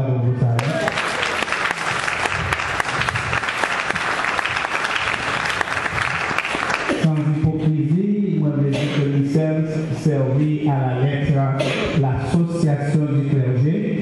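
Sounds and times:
man speaking over loudspeaker: 0.0s - 1.0s, 6.9s - 14.0s
congregation applauding: 0.6s - 7.2s.

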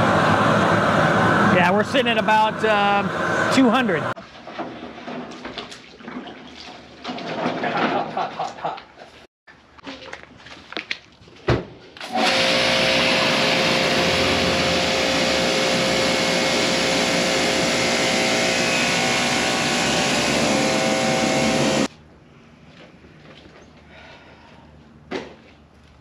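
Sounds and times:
motor-driven machine humming: 0.0s - 4.2s, 12.1s - 21.9s.

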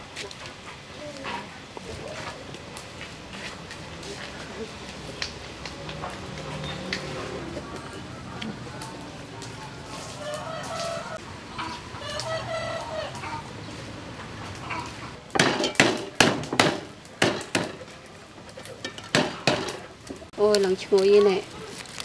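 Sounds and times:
rooster crowing: 10.0s - 13.5s
sharp loud knocks: 15.4s - 17.8s, 19.1s - 19.8s.

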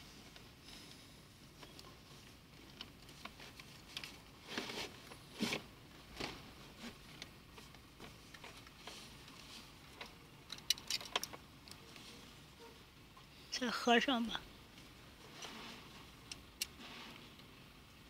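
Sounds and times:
fabric straps rustling and scraping: 2.1s - 10.2s, 14.8s - 17.4s.

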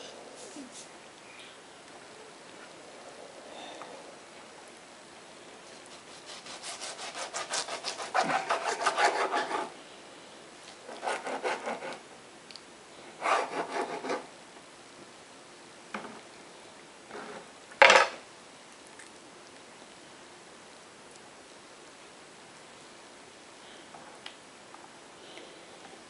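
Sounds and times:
knife sawing through raw meat: 5.9s - 9.7s, 10.9s - 12.0s, 13.2s - 14.2s.

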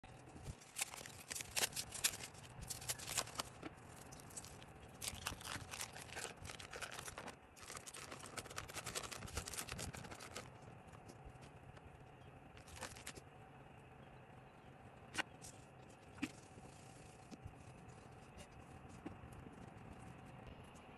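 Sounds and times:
foil wrapper crinkling and tearing: 0.3s - 10.6s, 12.6s - 13.2s.

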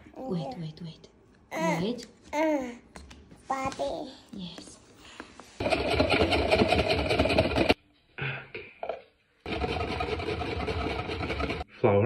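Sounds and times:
whisk beating in glass bowl: 9.5s - 11.6s.

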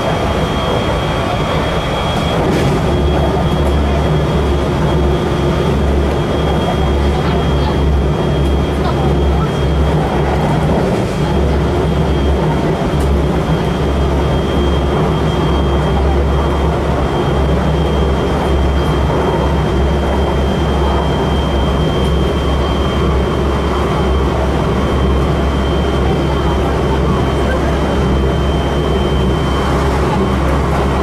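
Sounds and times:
train wheels rumbling on rails: 0.0s - 31.0s.

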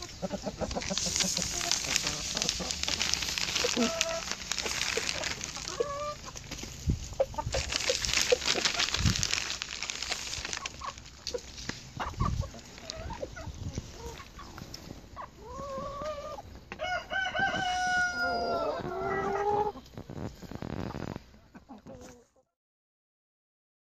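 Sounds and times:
chickens clucking: 0.0s - 22.6s
dense rustling: 0.7s - 12.0s
rooster crowing: 16.8s - 19.3s.

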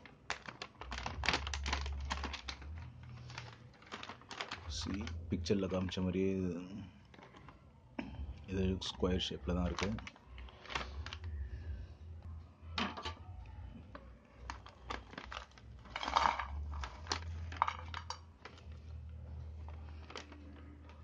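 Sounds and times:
foil snack wrapper crinkling: 0.0s - 5.2s, 9.6s - 11.5s, 14.3s - 18.8s, 19.6s - 21.0s.

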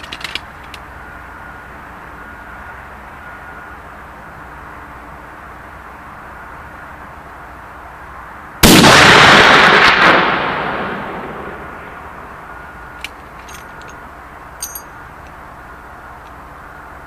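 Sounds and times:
rifle shot with echo: 8.6s - 11.8s.

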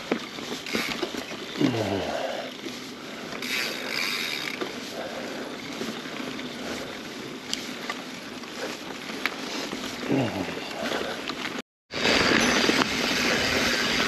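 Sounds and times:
bike clicks and knocks: 0.0s - 10.1s
bike tyres rushing over dirt: 0.0s - 14.0s.

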